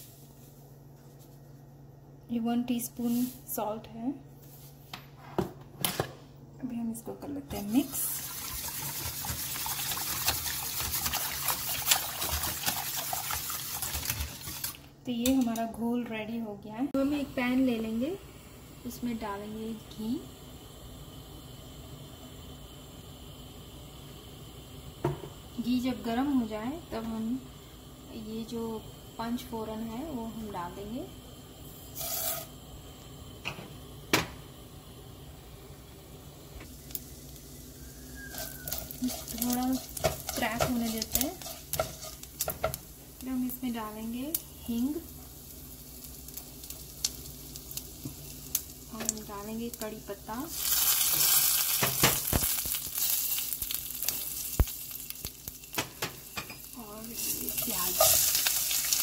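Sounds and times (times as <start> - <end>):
spice seeds sizzling in oil: 0.0 - 1.7, 2.3 - 4.8, 7.5 - 16.1, 16.8 - 59.0
whisk sloshing batter: 8.2 - 14.6.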